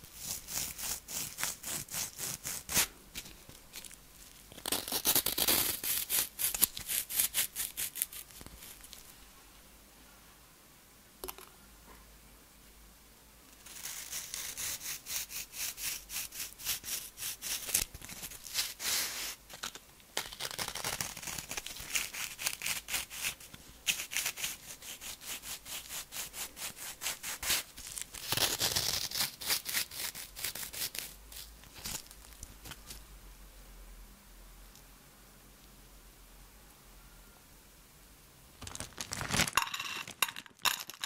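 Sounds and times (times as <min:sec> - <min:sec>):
freeze-dried strawberries crackling: 0:00.2 - 0:09.1, 0:17.5 - 0:24.7, 0:27.2 - 0:33.0, 0:38.6 - 0:41.0.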